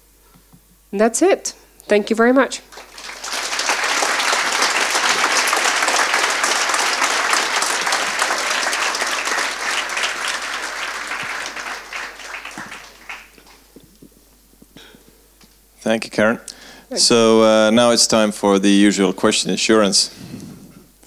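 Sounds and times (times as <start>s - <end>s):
audience applauding: 2.7s - 13.8s.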